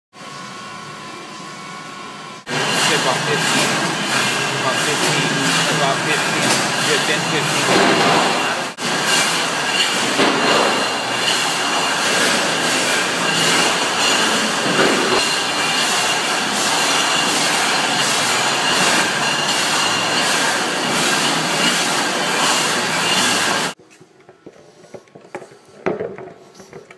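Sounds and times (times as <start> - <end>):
electric pump running: 0.2 - 26.2
high whining tones: 0.6 - 23.8.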